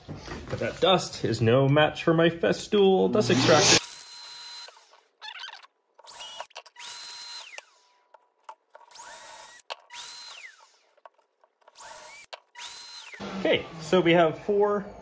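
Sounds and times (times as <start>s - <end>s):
cordless drill whining: 3.2s - 8.2s, 8.8s - 13.8s
drill clicks: 3.3s - 13.2s.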